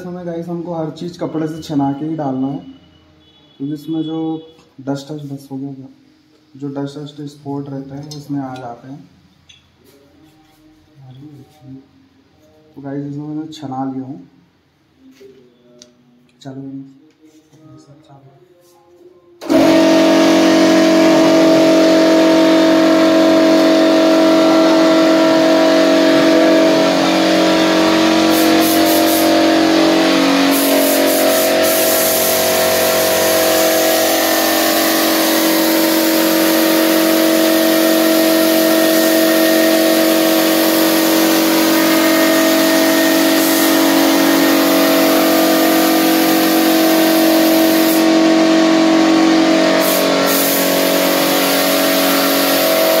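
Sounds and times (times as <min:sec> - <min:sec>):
air compressor humming: 0:19.4 - 0:53.0
spray gun hissing: 0:19.4 - 0:53.0.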